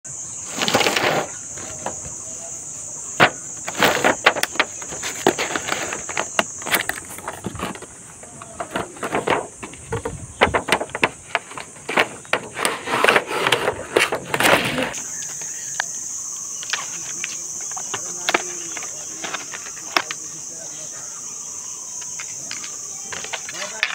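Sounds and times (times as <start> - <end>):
cardboard scrape: 0.4 - 2.2, 3.2 - 15.0
cardboard box rustling and clicking: 3.2 - 15.0
high-pitched hiss: 14.5 - 23.9.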